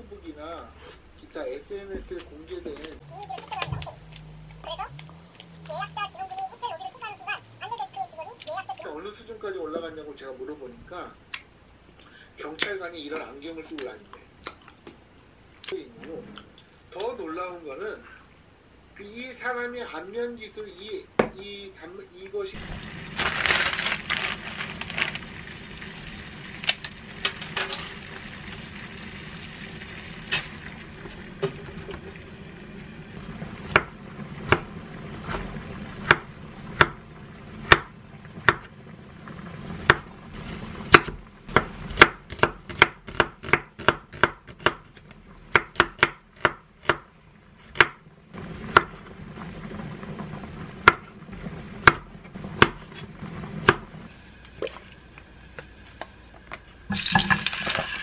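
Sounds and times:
knife chopping on wooden board: 40.9s - 47.1s, 47.7s - 48.0s.

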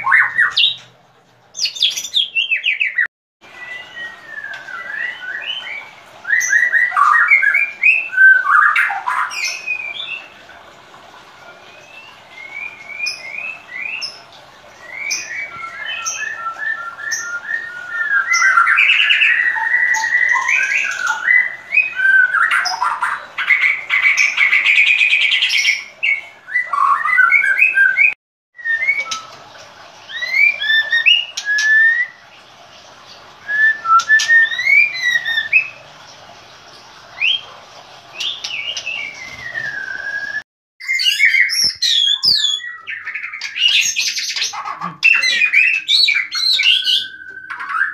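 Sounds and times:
bird singing whistled phrases: 1.6s - 10.3s, 14.8s - 23.2s, 26.5s - 29.4s, 30.1s - 32.2s, 33.4s - 35.8s, 38.2s - 44.4s, 45.0s - 47.9s.

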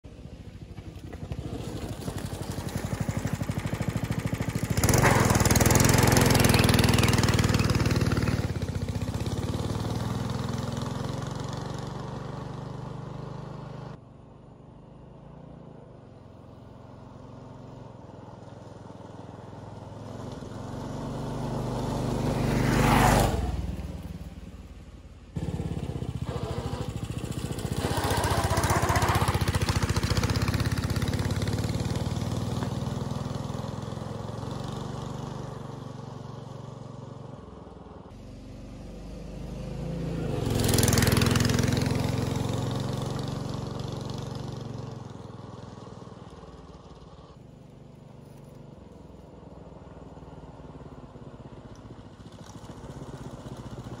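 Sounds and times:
single-cylinder engine running: 0.1s - 14.0s, 16.0s - 54.0s.

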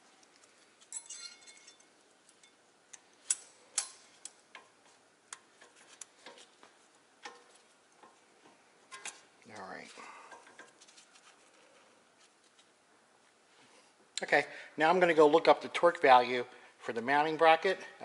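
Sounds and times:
light metallic rattle: 0.4s - 4.8s.

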